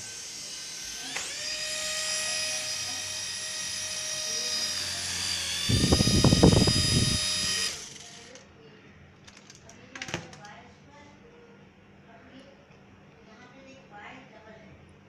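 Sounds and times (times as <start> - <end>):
toy helicopter motor whine: 0.0 - 8.4.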